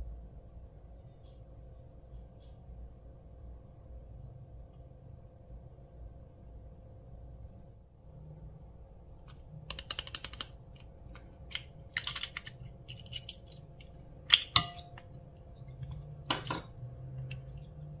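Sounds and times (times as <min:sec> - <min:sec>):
small hard objects clicking: 0:09.3 - 0:14.6.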